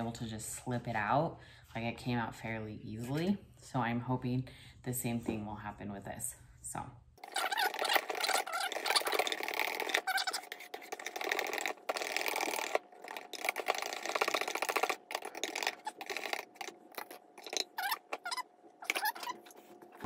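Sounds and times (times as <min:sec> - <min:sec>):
wire whisk scraping metal bowl: 0:07.2 - 0:19.6.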